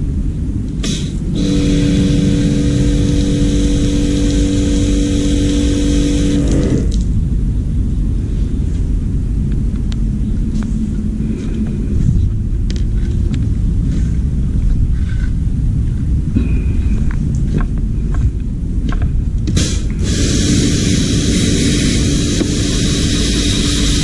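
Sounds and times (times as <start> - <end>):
spray gun air hiss with whistle: 0.8 - 6.4, 19.6 - 24.0.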